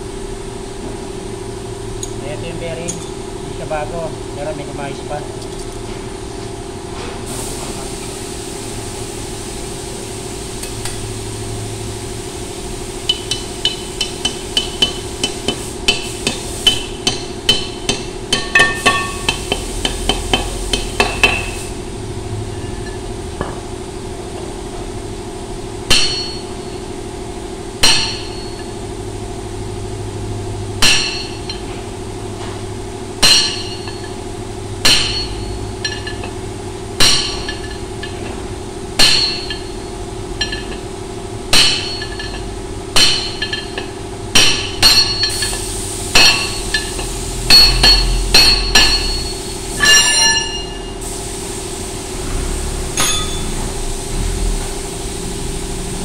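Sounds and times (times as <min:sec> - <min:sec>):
hammer on steel hub: 0:02.0 - 0:03.2, 0:13.0 - 0:21.7, 0:25.8 - 0:26.8, 0:27.8 - 0:28.8, 0:30.7 - 0:31.8, 0:33.2 - 0:36.4, 0:37.0 - 0:38.4, 0:39.0 - 0:40.9, 0:41.5 - 0:51.0, 0:53.0 - 0:53.7.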